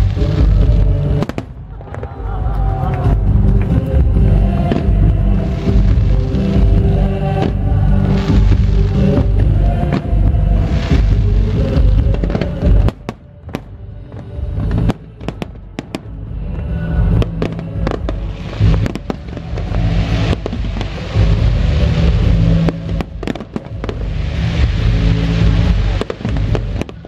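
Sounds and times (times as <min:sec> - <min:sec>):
firework bangs: 0:00.0 - 0:16.2, 0:17.2 - 0:27.0
music playing: 0:00.0 - 0:27.0
firework hiss: 0:03.7 - 0:13.7, 0:17.2 - 0:27.0.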